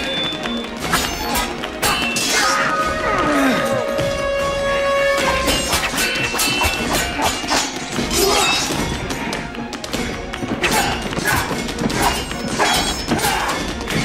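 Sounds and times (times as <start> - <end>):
dramatic film music: 0.0 - 14.0
steel blades clashing: 0.9 - 2.8, 5.2 - 9.1, 10.7 - 14.0.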